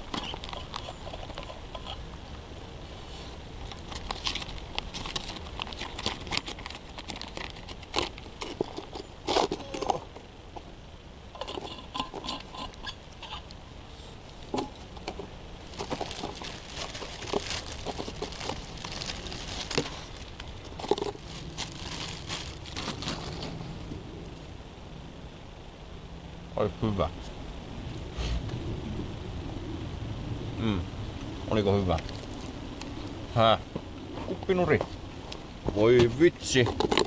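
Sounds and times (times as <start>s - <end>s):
puppy eating with crunching: 0.0s - 2.4s, 3.4s - 10.6s, 11.3s - 13.6s, 14.4s - 24.0s, 36.0s - 37.0s.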